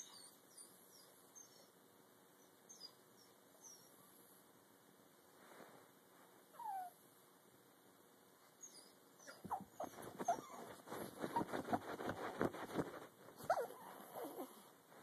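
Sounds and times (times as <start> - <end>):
dog whining: 0.0 - 1.7, 2.7 - 4.0, 6.6 - 7.0, 8.6 - 12.2, 13.4 - 14.7
clicks and scuffs near microphone: 9.4 - 13.7.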